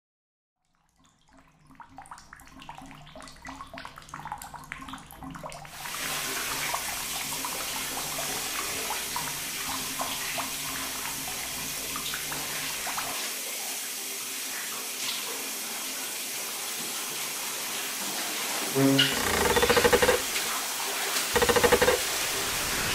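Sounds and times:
shower running: 5.7 - 22.9.

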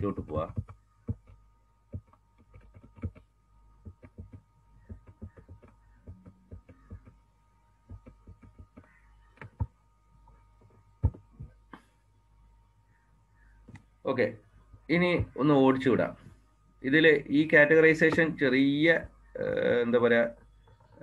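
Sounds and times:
faint high whine: 0.0 - 21.0
computer clicks and knocks: 0.4 - 7.2.

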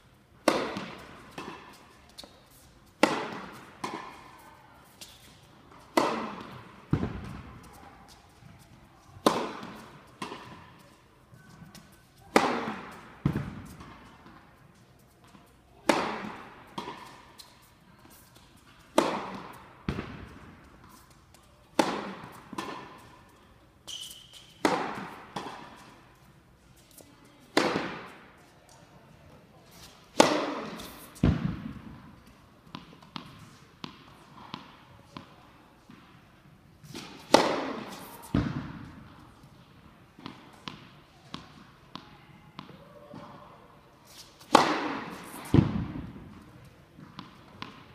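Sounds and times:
tennis ball thud: 0.4 - 1.7, 3.0 - 4.2, 5.9 - 7.6, 9.2 - 10.6, 12.3 - 14.4, 15.9 - 17.2, 19.0 - 20.6, 21.8 - 23.1, 24.6 - 25.8, 27.6 - 28.2, 30.1 - 32.1, 36.9 - 39.1, 44.4 - 47.9
racket striking tennis ball: 0.4 - 8.2, 9.2 - 10.9, 11.6 - 14.4, 15.2 - 21.1, 21.7 - 23.2, 23.9 - 26.0, 27.5 - 28.3, 29.7 - 36.1, 36.9 - 39.2, 40.2 - 43.3, 44.0 - 47.9.

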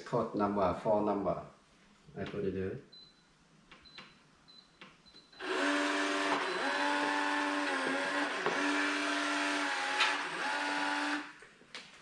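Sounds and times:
lock motor whirring: 5.4 - 11.4.

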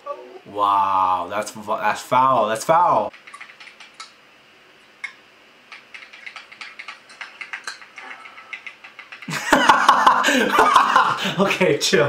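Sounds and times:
typing on phone keyboard: 3.1 - 4.1, 5.0 - 9.3.

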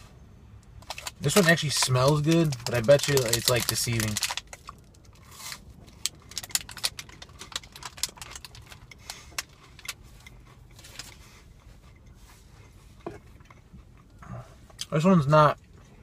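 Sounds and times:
plastic wrapper crinkling: 0.8 - 10.0
crunchy bar chewing: 0.8 - 14.9.

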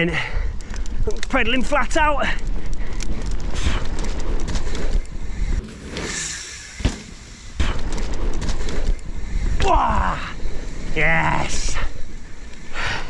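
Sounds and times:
bike tyres rolling rumble: 0.0 - 13.0.

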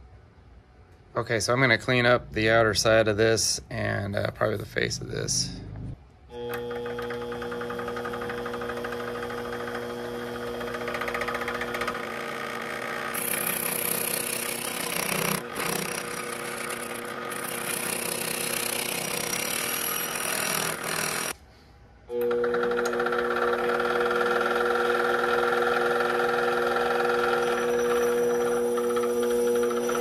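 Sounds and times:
metal lathe motor whine: 6.3 - 21.4, 22.1 - 30.0
lathe cutting metal: 6.9 - 21.4, 22.8 - 30.0.

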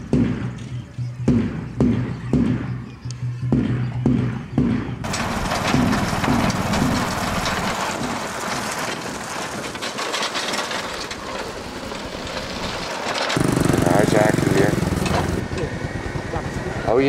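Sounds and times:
scooter engine running: 13.4 - 17.0.

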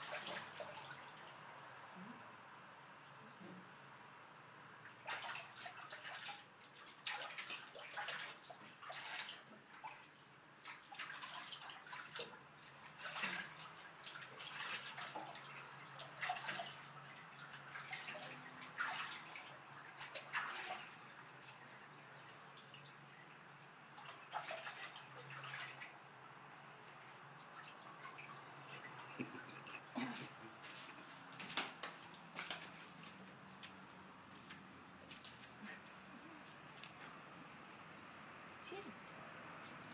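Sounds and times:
water splashing in metal sink: 0.0 - 1.4, 4.8 - 30.1.

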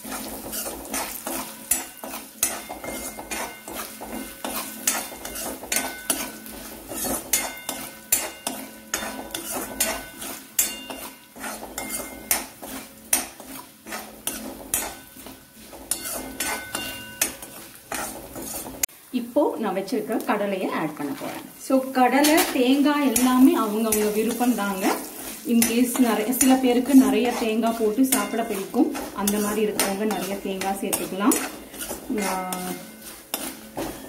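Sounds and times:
metal spatula scraping metal pan: 0.0 - 18.9, 21.0 - 34.0
oil sizzling: 0.0 - 34.0.

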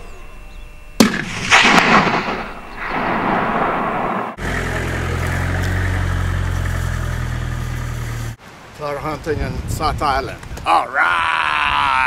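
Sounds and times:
rifle shot echoing: 1.0 - 4.4
vehicle engine running: 4.4 - 8.4.

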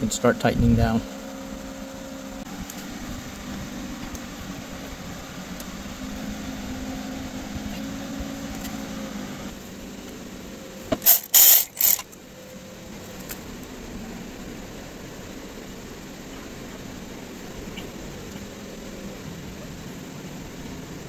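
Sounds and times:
steady low hum: 0.0 - 21.0
ratchet wrench: 11.0 - 12.1.

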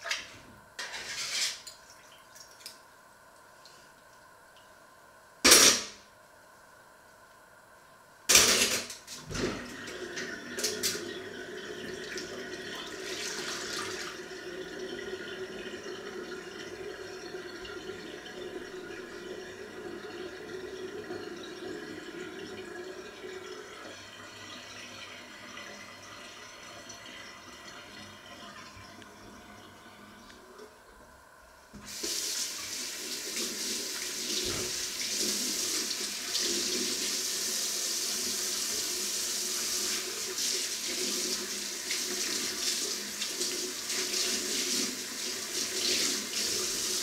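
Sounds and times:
tap water running into steel sink: 31.8 - 47.0.

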